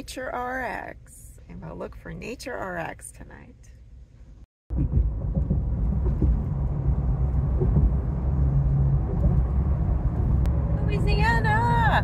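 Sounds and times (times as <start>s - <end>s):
tyre and engine rumble in cab: 4.1s - 12.0s.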